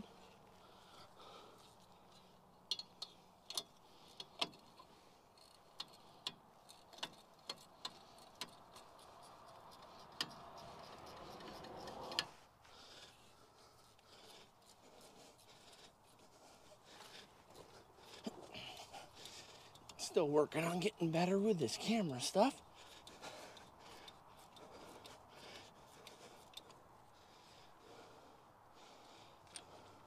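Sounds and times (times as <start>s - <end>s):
sharp metal clicks: 1.7s - 12.4s
metal scraping: 7.0s - 12.4s.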